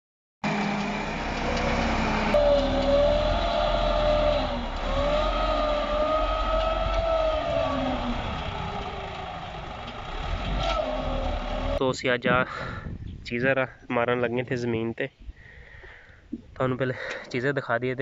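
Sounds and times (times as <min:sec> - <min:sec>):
tractor diesel engine under load: 0:00.4 - 0:12.9.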